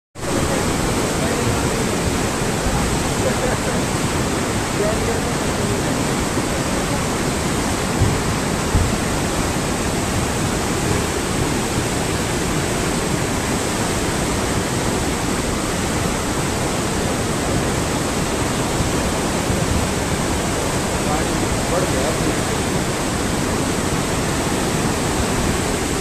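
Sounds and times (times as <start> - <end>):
river rushing roar: 0.2 - 26.0
low thumps: 7.8 - 9.6.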